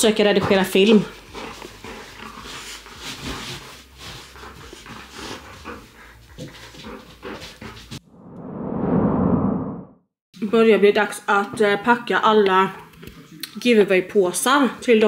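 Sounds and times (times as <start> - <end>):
dog breathy sounds: 0.4 - 8.0.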